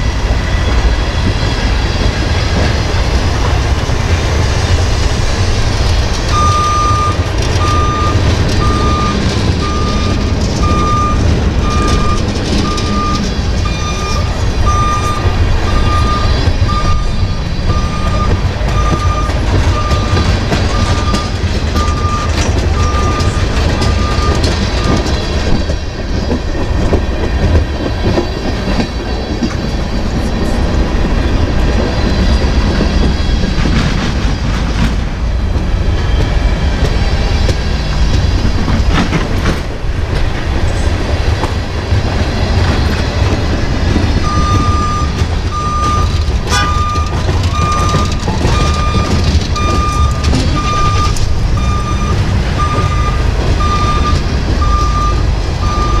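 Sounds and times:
train cars clanking: 0:00.0 - 0:56.0
train wheels rumbling on rail: 0:00.0 - 0:56.0
steady beeping: 0:06.1 - 0:25.1, 0:44.2 - 0:56.0.

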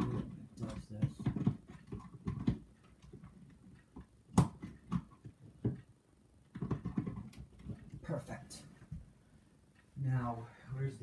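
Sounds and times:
plugs clicking and knocking: 0:00.0 - 0:08.2.

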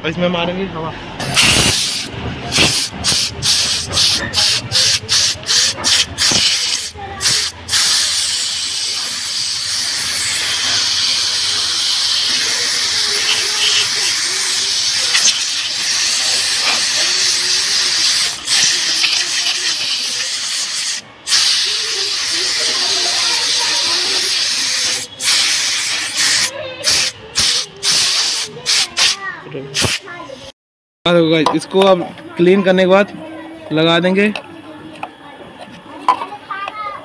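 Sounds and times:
compressed air hissing: 0:01.2 - 0:29.2, 0:29.8 - 0:30.1.

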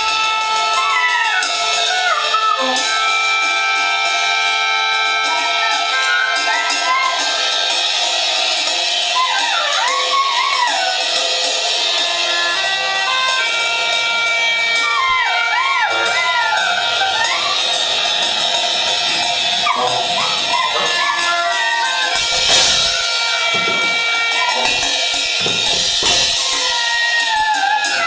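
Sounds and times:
drum kit cymbals: 0:00.0 - 0:28.0
bass drum thumps: 0:22.2 - 0:26.5.

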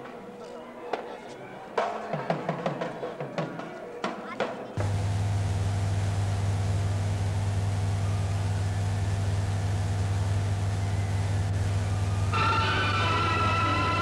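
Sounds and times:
electrical mains hum with hiss: 0:04.8 - 0:14.0.

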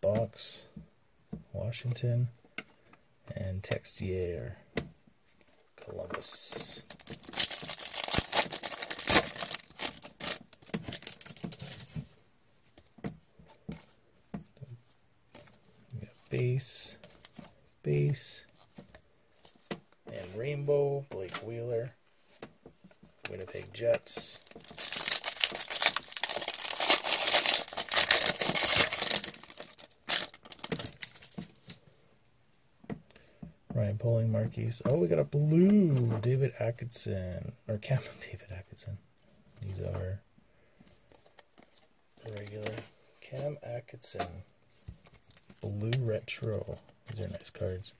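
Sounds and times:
cards rustling and clicking: 0:06.0 - 0:12.1, 0:23.2 - 0:31.8
foil wrapper crinkling: 0:06.8 - 0:11.8, 0:24.3 - 0:31.4.

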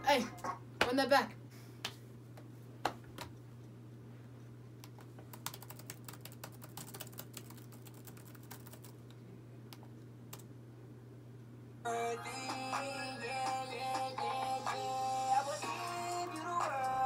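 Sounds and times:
steady low hum: 0:00.0 - 0:17.0
laptop keyboard typing: 0:05.3 - 0:09.0.

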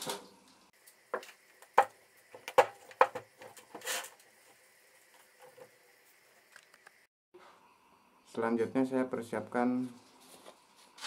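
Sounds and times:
scraping rustle: 0:03.4 - 0:04.2.

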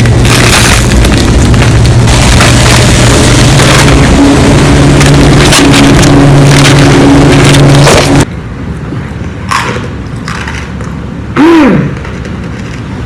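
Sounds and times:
loud distorted noise with hum: 0:00.0 - 0:08.8.

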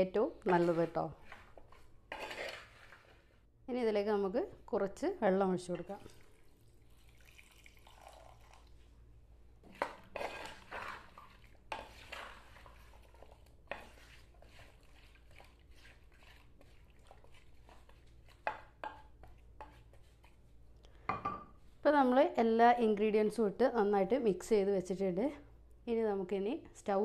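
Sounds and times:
wooden spoon scraping clay pot: 0:00.3 - 0:03.4, 0:09.6 - 0:20.5.

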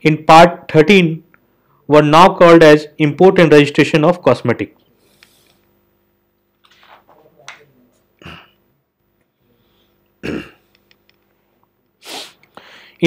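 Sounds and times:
person clearing throat: 0:08.2 - 0:08.6, 0:10.2 - 0:10.7.

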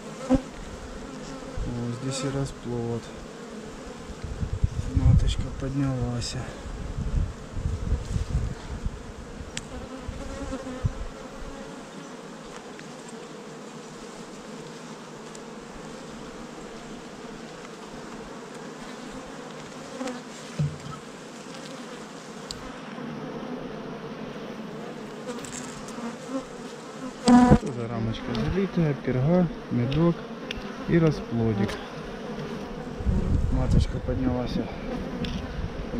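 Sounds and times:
honeybees buzzing: 0:00.0 - 0:35.9
hive frames bumping: 0:17.5 - 0:21.9, 0:27.2 - 0:28.7.

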